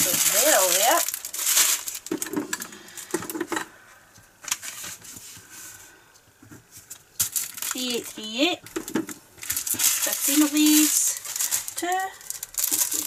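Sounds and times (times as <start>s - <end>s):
plastic bags crinkling: 0.0s - 3.6s, 6.8s - 13.0s.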